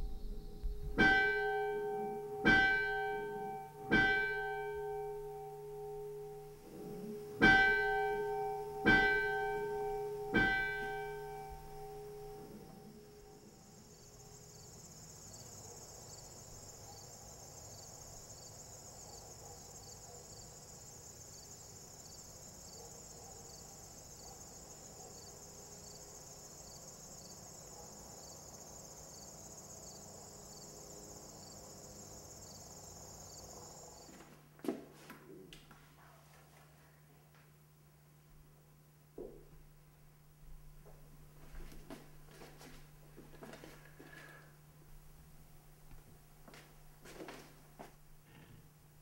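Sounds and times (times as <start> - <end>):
insects trilling: 8.0 - 34.2.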